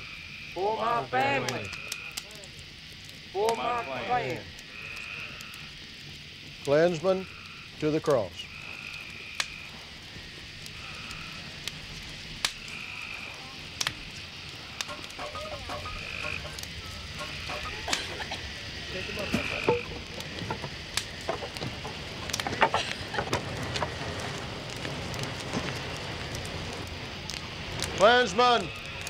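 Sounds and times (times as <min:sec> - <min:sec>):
fire crackling and popping: 0:00.0 - 0:29.0
frogs calling: 0:00.0 - 0:29.0
low rush of flame: 0:01.2 - 0:29.0.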